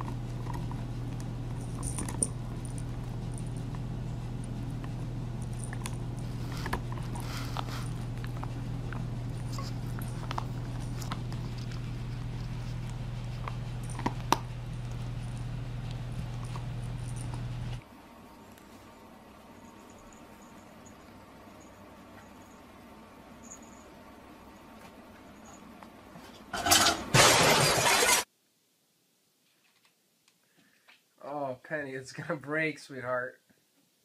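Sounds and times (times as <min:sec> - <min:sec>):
dog gnawing a chew: 0:00.0 - 0:17.8
steady low hum: 0:00.0 - 0:26.5.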